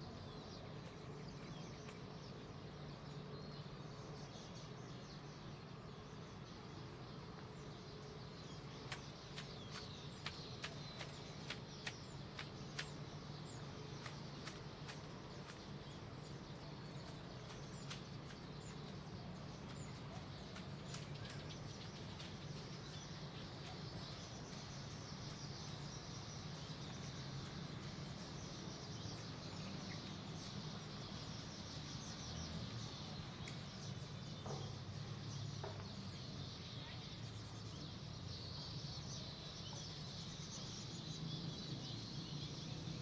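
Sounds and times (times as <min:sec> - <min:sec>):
birds chirping: 0:00.0 - 0:43.0
soft ticks: 0:26.5 - 0:30.9, 0:32.6 - 0:33.7.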